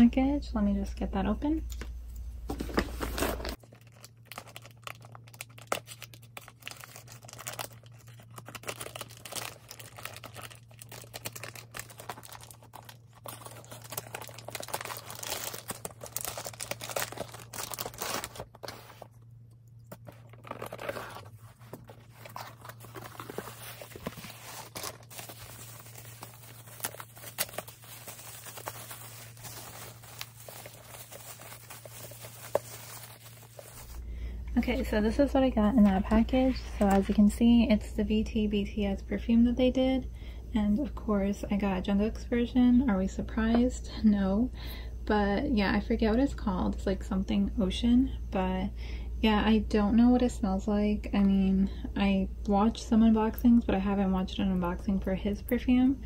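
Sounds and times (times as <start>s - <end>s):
faint low hum: 0.0s - 56.0s
packaging tearing and crinkling: 3.0s - 19.2s, 19.9s - 34.0s.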